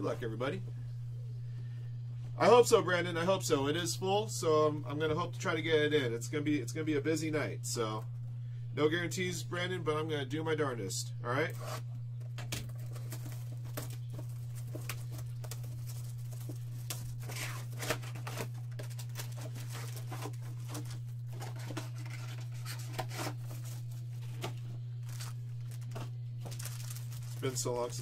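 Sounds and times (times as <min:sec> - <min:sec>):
low electrical hum: 0:00.0 - 0:28.0
shrink wrap crackling and tearing: 0:12.6 - 0:28.0.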